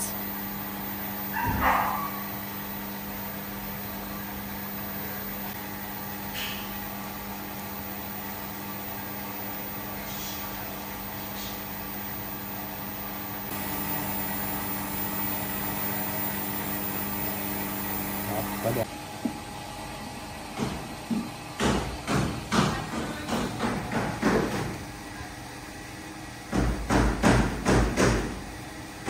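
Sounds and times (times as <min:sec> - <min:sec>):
furnace electrical hum: 0:00.0 - 0:29.0.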